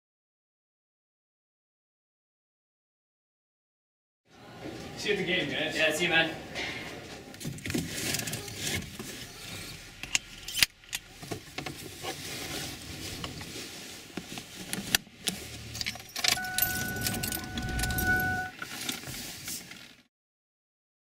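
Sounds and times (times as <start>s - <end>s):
clothing rustling: 11.0s - 20.0s
keys jangling: 15.6s - 18.5s
steady electronic tone: 16.4s - 18.5s.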